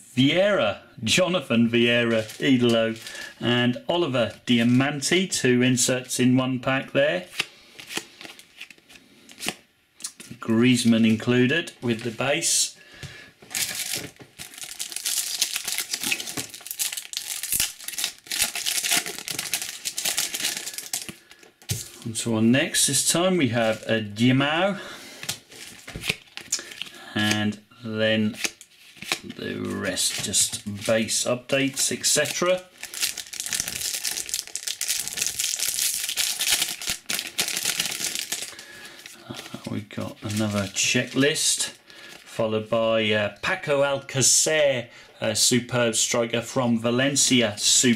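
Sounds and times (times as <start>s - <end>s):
foil wrapper crinkling: 2.0s - 3.3s, 13.5s - 21.5s, 31.8s - 41.3s.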